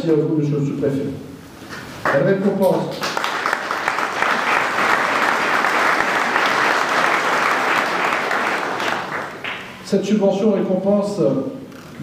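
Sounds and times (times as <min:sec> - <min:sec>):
audience applauding: 0:02.9 - 0:09.8.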